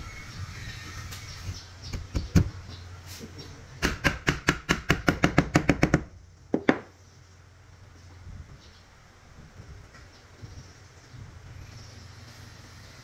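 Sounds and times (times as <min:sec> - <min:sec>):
knocking on wood: 0:03.8 - 0:06.9.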